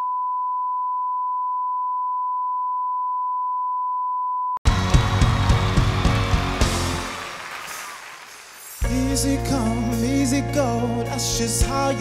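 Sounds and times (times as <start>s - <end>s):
music with heavy bass beat: 4.7s - 7.2s.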